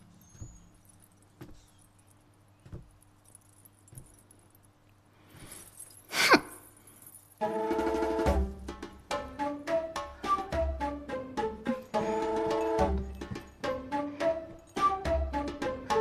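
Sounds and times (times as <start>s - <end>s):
faint jingling: 0.0s - 7.5s, 11.7s - 15.0s.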